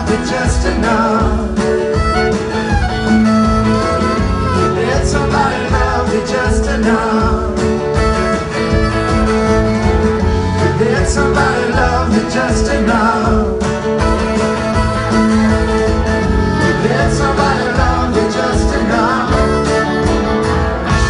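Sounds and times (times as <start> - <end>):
person singing: 0.0 - 2.3, 4.4 - 8.0, 10.4 - 14.0, 16.4 - 20.2
acoustic guitar: 0.0 - 21.0
electric guitar: 0.0 - 21.0.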